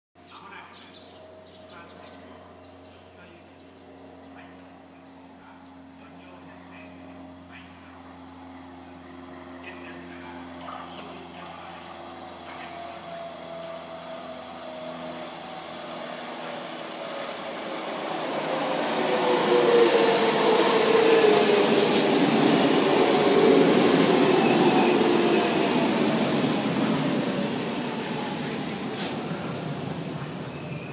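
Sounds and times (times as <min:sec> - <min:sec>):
electric train passing: 0:07.4 - 0:30.9.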